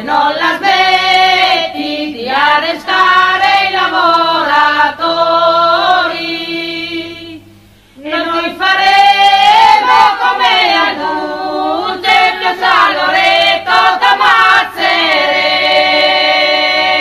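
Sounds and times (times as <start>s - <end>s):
group of women singing: 0.0s - 17.0s.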